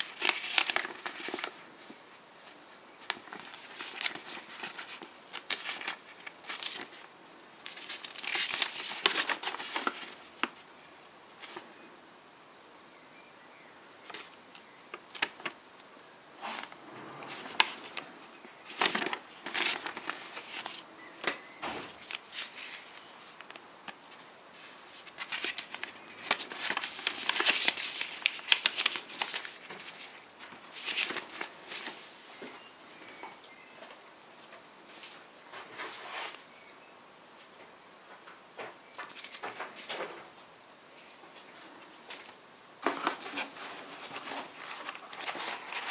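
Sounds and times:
paper rustling and crinkling: 0.0s - 10.7s, 14.0s - 15.6s, 16.4s - 32.6s, 38.9s - 40.3s, 41.0s - 45.9s.

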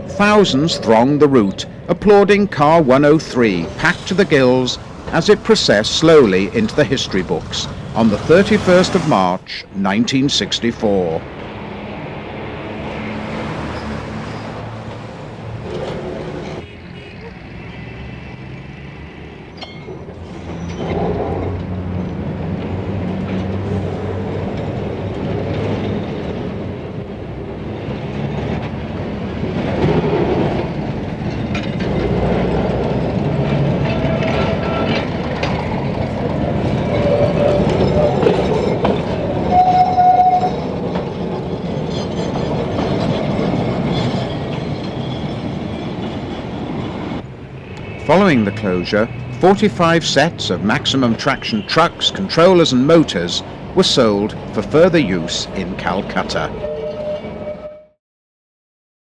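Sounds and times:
tram wheels rumbling on rails: 0.0s - 57.9s
short horn tones: 39.5s - 40.6s.

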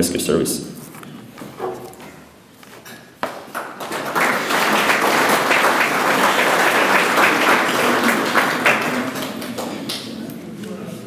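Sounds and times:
audience applauding: 3.3s - 10.2s.

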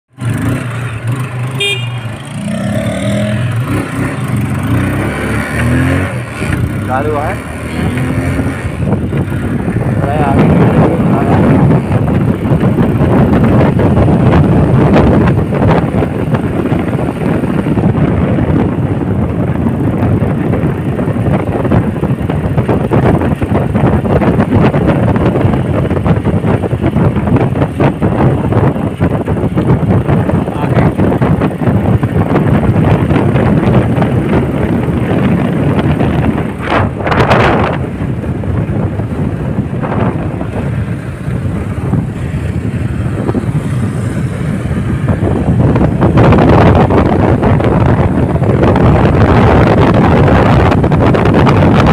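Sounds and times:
motorcycle engine: 0.1s - 51.9s
road noise: 0.1s - 51.9s
wind buffeting microphone: 0.1s - 51.9s
short high horn toot: 1.5s - 2.3s.

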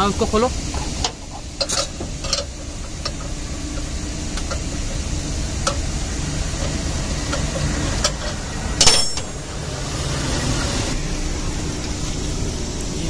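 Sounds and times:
low machinery rumble: 0.0s - 13.0s
sharp metallic clank: 7.3s - 9.6s.

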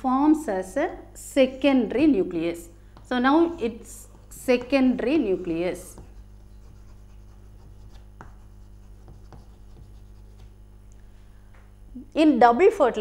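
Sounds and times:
low electrical hum: 0.0s - 13.0s
chalk tapping and scratching: 3.0s - 10.6s.

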